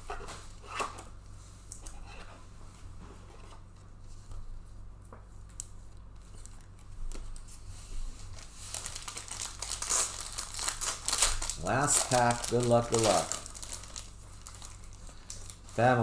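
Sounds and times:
plastic wrapper crinkling and tearing: 6.1 - 7.5, 8.2 - 16.0
card packaging clicks and rustles: 8.2 - 15.9.

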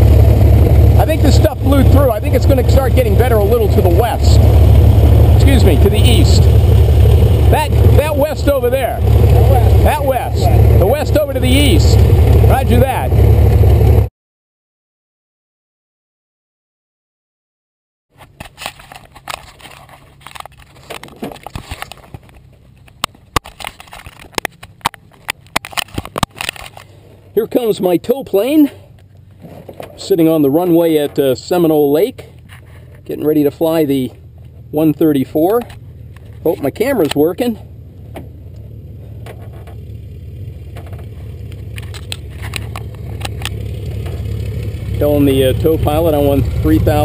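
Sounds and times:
low steady hum: 0.0 - 14.1, 18.8 - 47.0
piston aircraft engine droning: 0.0 - 14.1, 18.5 - 47.0
camera handling clicks and knocks: 18.4 - 26.9.

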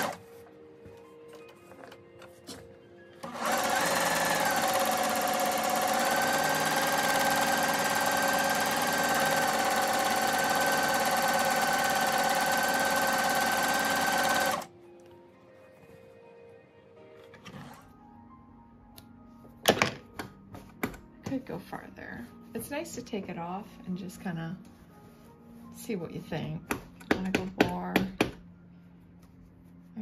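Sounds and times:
sewing machine running: 0.0 - 0.2, 3.2 - 14.7.

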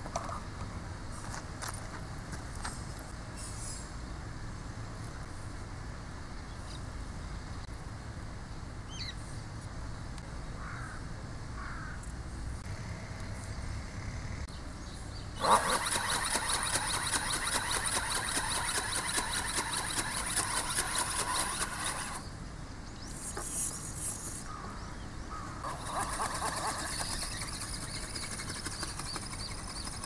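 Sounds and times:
low outdoor rumble: 0.0 - 15.6
flapping wings clatter: 15.4 - 22.2, 25.6 - 30.0
gear whine: 15.4 - 22.3.

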